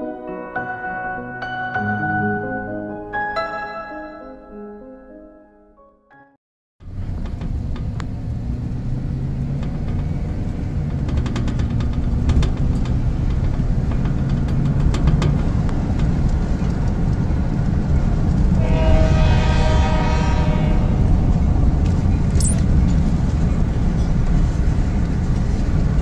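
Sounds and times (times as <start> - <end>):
tyres rumbling on gravel: 6.9 - 19.6.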